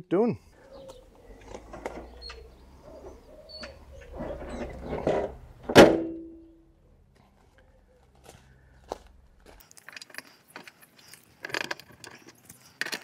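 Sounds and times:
bonnet latch metal clunk: 3.6 - 6.4
small clicks and rustles: 9.5 - 13.0.

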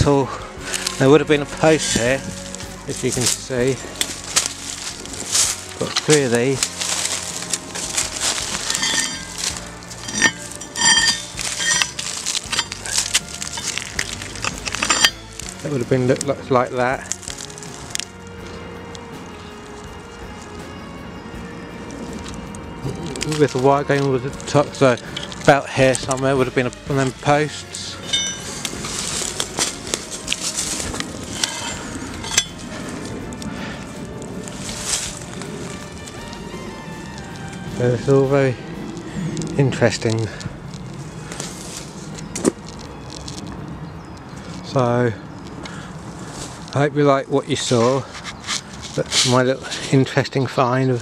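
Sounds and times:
crunches in dry leaf litter: 0.6 - 51.0
light ringing clink: 8.7 - 9.3, 10.0 - 13.0, 28.0 - 28.5, 31.4 - 32.6.

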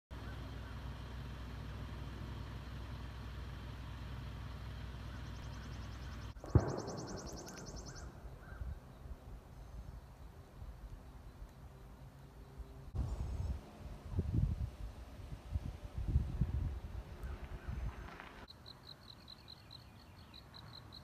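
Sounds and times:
vehicle engine idling: 0.1 - 8.3.

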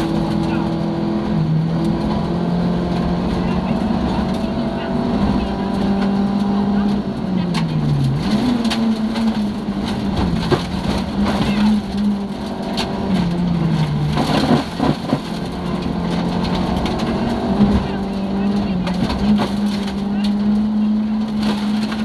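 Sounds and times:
car engine running hard: 0.0 - 22.0.

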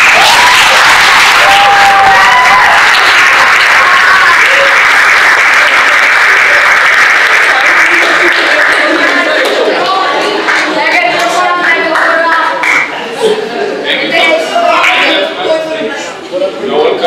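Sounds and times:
audience applause: 0.0 - 13.0.

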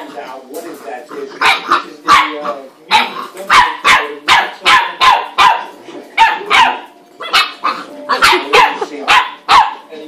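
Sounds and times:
puppy yapping: 1.4 - 9.9.

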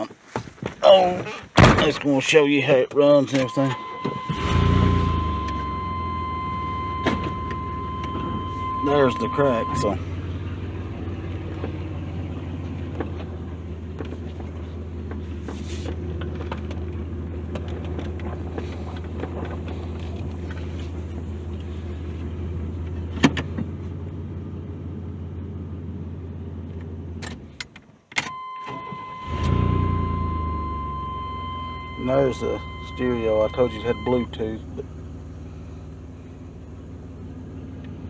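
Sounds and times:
truck engine idling: 2.6 - 23.0.

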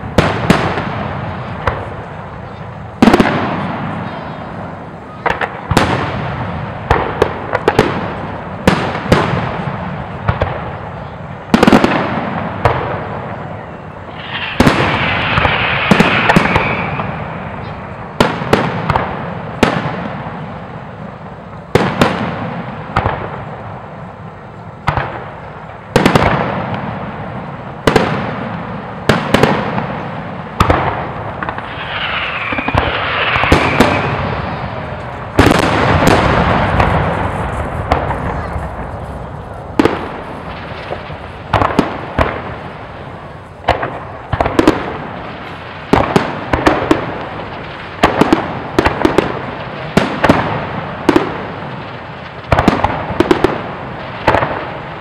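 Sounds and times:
firework crackling hiss: 0.0 - 55.0
firework shells bursting: 14.0 - 19.1, 30.5 - 49.2.

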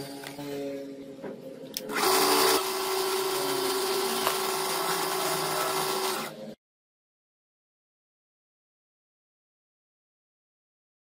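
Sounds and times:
lathe motor whine: 1.9 - 6.4.

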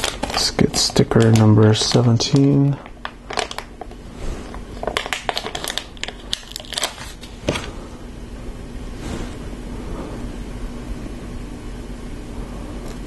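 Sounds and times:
sticker sheet crinkling: 0.0 - 3.9, 4.8 - 7.4
plastic pieces knocking: 4.8 - 7.7.

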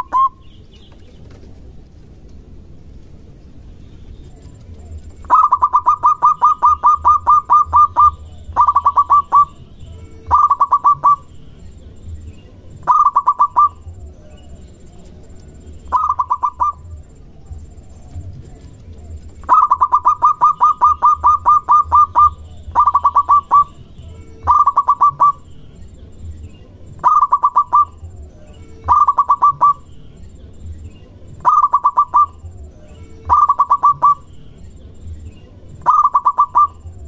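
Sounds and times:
dove cooing: 4.2 - 11.3, 12.7 - 25.6, 26.9 - 30.0, 31.4 - 34.4, 35.7 - 37.0.

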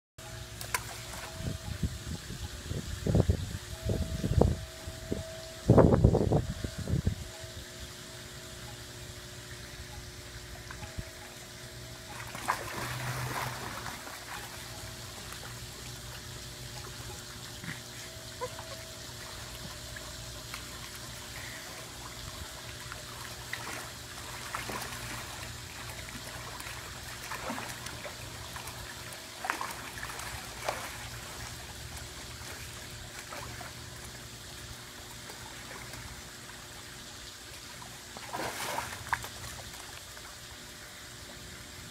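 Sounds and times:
steady low hum: 0.2 - 41.9
pool water lapping: 0.4 - 1.7, 7.4 - 41.9
water splashes: 12.0 - 41.0.

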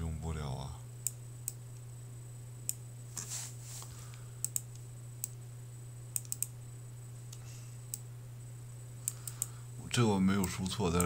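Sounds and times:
low electrical hum: 0.0 - 11.0
soft rustle: 3.1 - 4.2
keyboard and mouse clicks: 6.2 - 6.5.

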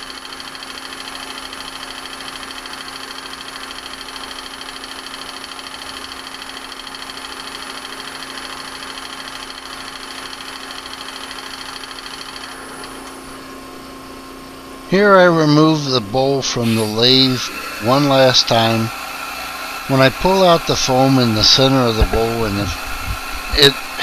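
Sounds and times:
wood lathe humming: 0.0 - 24.0
high whining tones: 12.0 - 24.0.

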